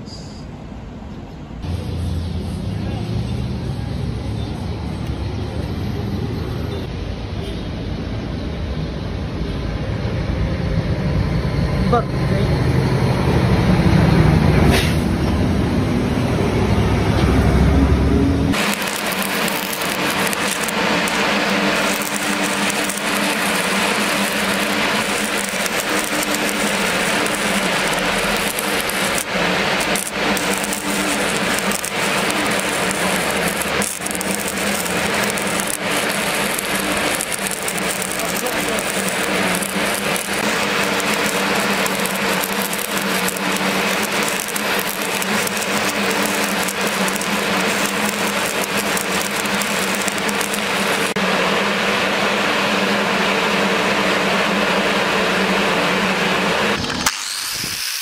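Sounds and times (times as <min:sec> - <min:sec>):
welding arc crackling: 0:16.1 - 0:58.0.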